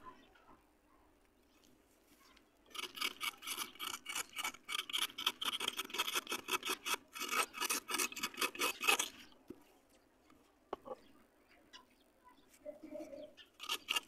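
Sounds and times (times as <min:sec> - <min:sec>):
wooden stick scraping dry clay: 0:01.5 - 0:11.0, 0:13.5 - 0:14.0.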